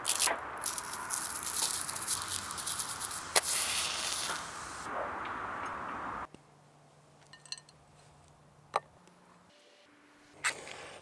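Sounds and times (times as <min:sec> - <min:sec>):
bark crackling as peeled: 0:00.0 - 0:04.6
match striking and flaring: 0:00.0 - 0:04.9.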